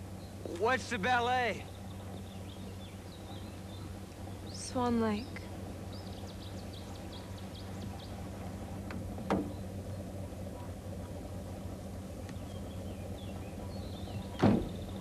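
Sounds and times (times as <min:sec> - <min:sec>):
car engine idling: 0:00.0 - 0:15.0
faint bird chirps: 0:01.6 - 0:08.8, 0:12.2 - 0:15.0.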